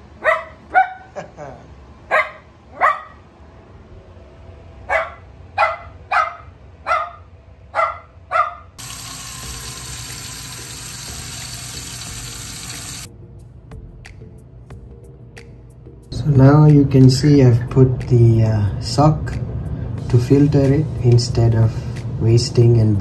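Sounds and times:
puppy yapping: 0.2 - 1.2, 2.1 - 3.2, 4.9 - 8.7
tap running into sink: 8.8 - 13.1.

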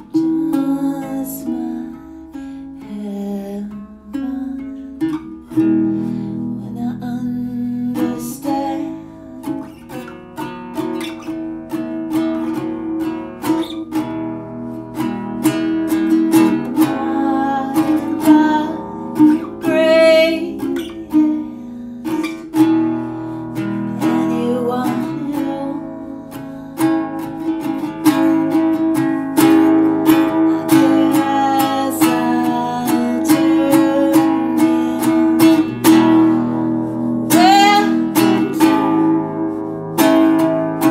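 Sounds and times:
person singing: 0.0 - 5.3, 6.4 - 9.7, 15.9 - 39.5
acoustic guitar picked and strummed: 0.0 - 40.9.

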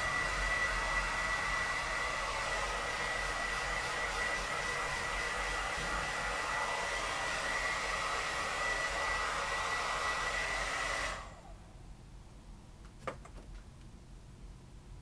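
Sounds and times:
hair dryer running: 0.0 - 11.7.

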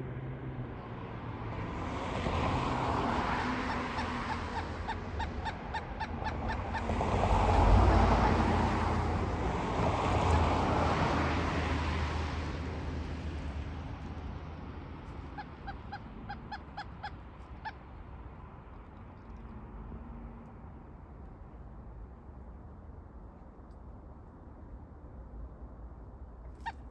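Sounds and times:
car passing: 0.0 - 23.5
woodpecker calling: 3.6 - 8.5, 15.1 - 17.8.

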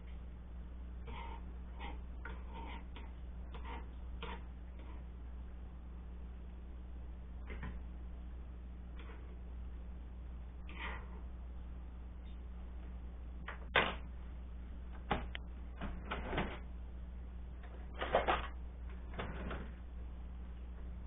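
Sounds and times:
steady low hum: 0.0 - 21.0
cabinet door opening and closing: 15.0 - 16.6, 17.9 - 19.8.

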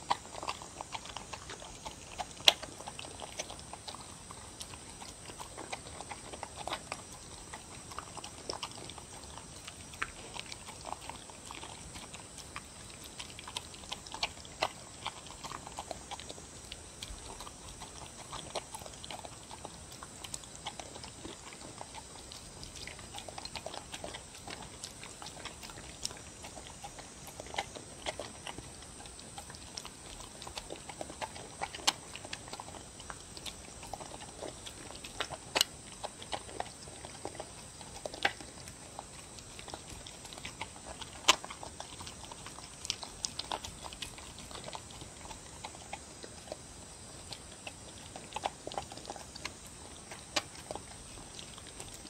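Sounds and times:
dog lapping and chewing: 0.0 - 52.0.

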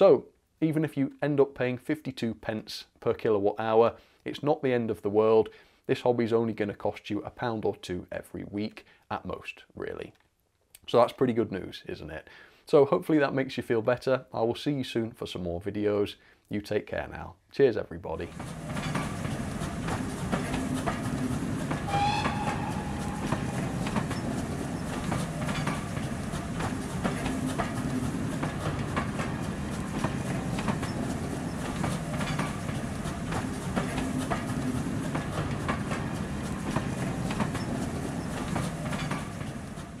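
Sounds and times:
low train rumble: 18.3 - 40.0
train wheels clicking over rail joints: 18.3 - 40.0
train whistle: 21.8 - 24.4.

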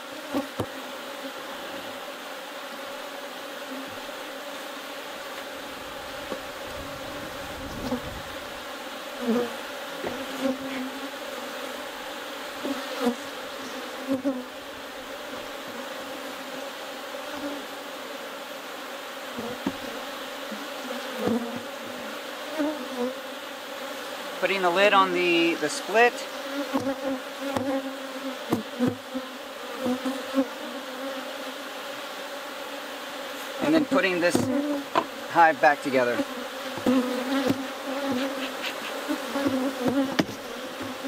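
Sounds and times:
honeybees buzzing: 0.0 - 41.0.

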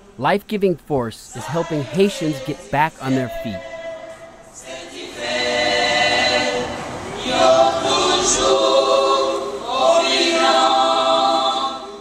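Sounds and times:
choir holding long notes: 1.3 - 12.0.

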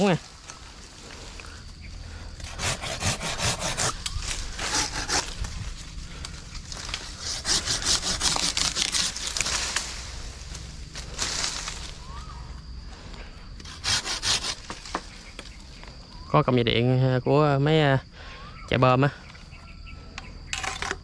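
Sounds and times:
hand saw cutting branch: 2.4 - 5.4, 7.0 - 9.7, 13.6 - 15.0.

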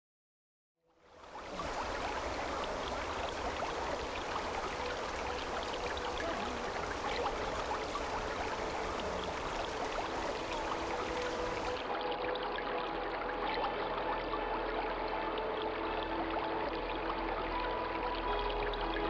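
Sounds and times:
stream water babbling over stones: 1.0 - 19.0.

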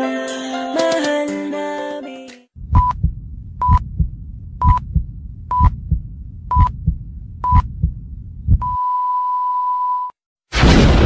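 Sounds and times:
heartbeat thuds: 2.6 - 8.8
heart monitor beep: 2.7 - 4.0, 4.6 - 5.8, 6.5 - 7.9, 8.5 - 10.1.

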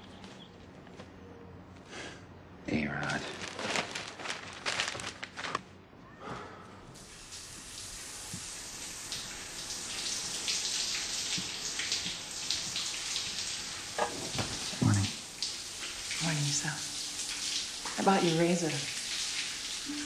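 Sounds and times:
shower water spraying: 7.0 - 20.0.

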